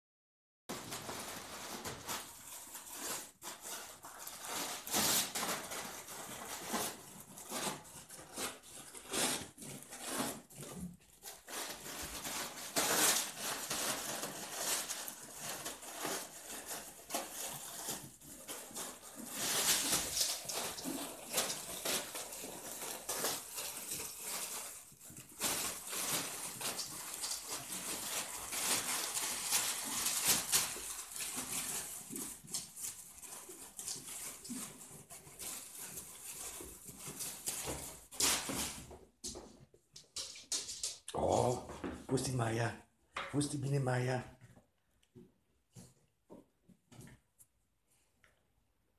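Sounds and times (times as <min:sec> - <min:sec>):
wrapping paper tearing: 0:00.7 - 0:38.8.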